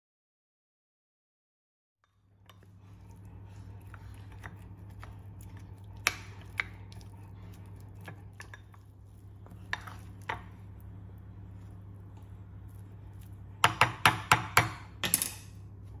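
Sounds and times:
low hum: 0:02.3 - 0:13.6
wooden spoon scraping bowl: 0:02.5 - 0:14.0.

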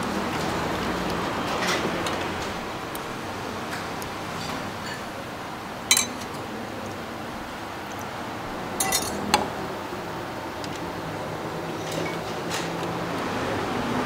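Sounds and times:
steady background noise: 0:00.0 - 0:14.0
utensils clinking against ceramic bowl: 0:05.9 - 0:06.4, 0:08.8 - 0:09.4.

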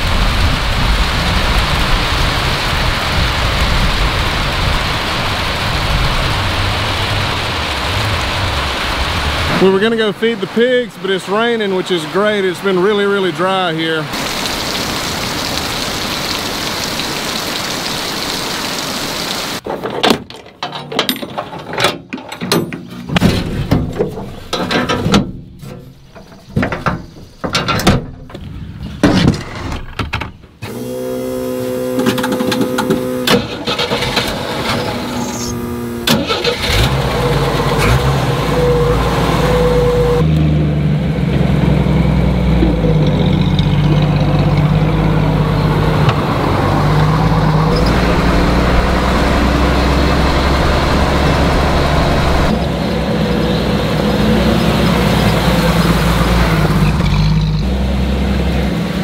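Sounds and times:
car engine starting and running: 0:00.0 - 0:18.3, 0:30.6 - 0:59.0
rain on a metal roof: 0:00.0 - 0:19.7, 0:31.4 - 0:40.5, 0:41.4 - 0:59.0.

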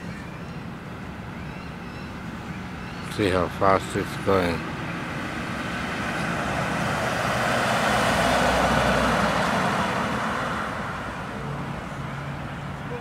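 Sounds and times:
car driving past fast: 0:05.0 - 0:12.4.

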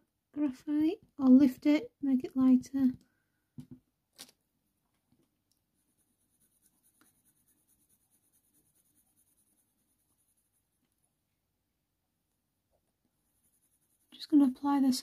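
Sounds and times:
pencil strokes on paper: 0:05.8 - 0:11.1, 0:13.0 - 0:15.0.

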